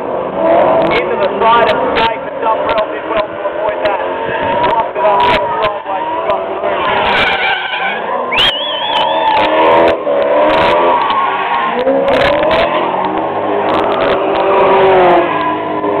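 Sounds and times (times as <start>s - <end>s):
engines revving hard: 0.0s - 16.0s
spinning tyre noise: 0.0s - 16.0s
wavering high squeal: 7.2s - 9.5s.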